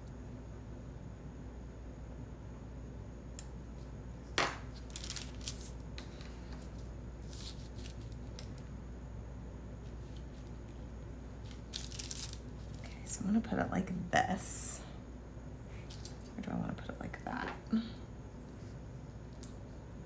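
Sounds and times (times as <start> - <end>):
steady low hum: 0.0 - 20.0
paper rustles: 4.5 - 8.6, 11.4 - 12.8.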